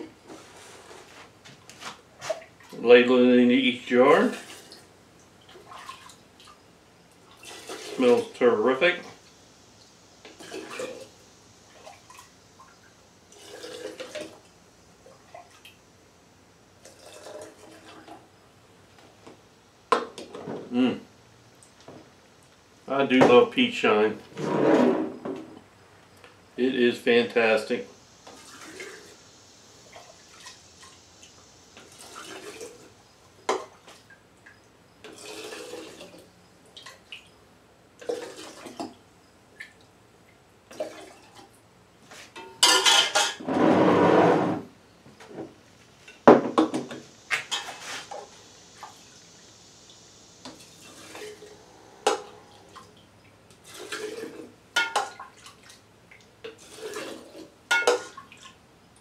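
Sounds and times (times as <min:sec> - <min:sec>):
liquid pouring into glass jars: 0:13.3 - 0:14.4, 0:16.8 - 0:18.2, 0:31.8 - 0:32.9, 0:35.0 - 0:36.2, 0:38.0 - 0:38.9, 0:50.6 - 0:52.8, 0:56.5 - 0:58.5.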